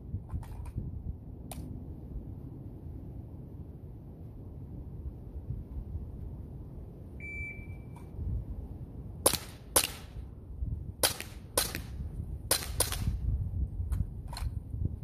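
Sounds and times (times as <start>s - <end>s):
wind rumbling on microphone: 0.0s - 15.0s
short high beep: 7.2s - 8.0s
air pistol shots: 9.2s - 10.2s, 11.0s - 13.2s.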